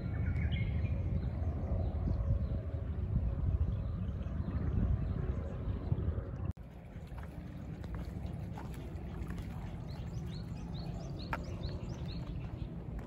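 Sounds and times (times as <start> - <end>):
water running in a channel: 6.6 - 13.0
bird chirping: 6.9 - 13.0.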